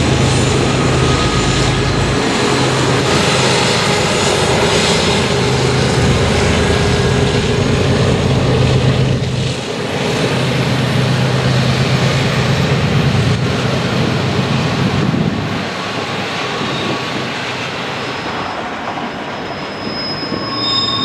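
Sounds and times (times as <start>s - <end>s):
low engine drone: 0.0s - 16.2s
train wheels rumbling on rail: 0.0s - 21.0s.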